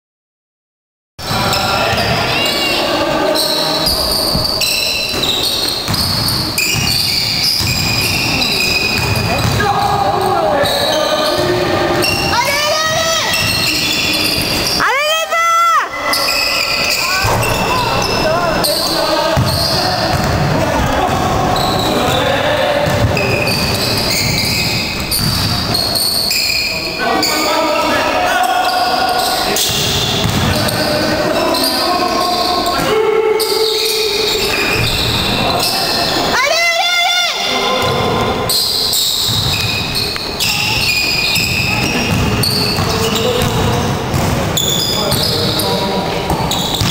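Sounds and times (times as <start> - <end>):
echoing noise of play: 1.2 - 46.9
spectators' voices: 1.2 - 46.9
shoe squeaks: 1.3 - 14.8, 15.9 - 20.3, 21.6 - 22.3, 23.1 - 27.6, 28.6 - 32.8, 33.4 - 36.3, 38.5 - 46.9
basketball bouncing on court: 4.3 - 10.3, 12.9 - 14.8, 19.3 - 26.4, 29.6 - 30.8, 37.8 - 38.3, 39.0 - 46.9.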